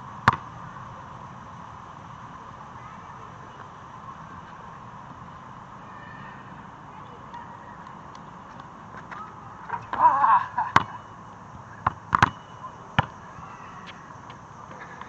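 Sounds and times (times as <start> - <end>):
basketball knocking on hoop and concrete: 0.2 - 0.4, 11.8 - 12.4.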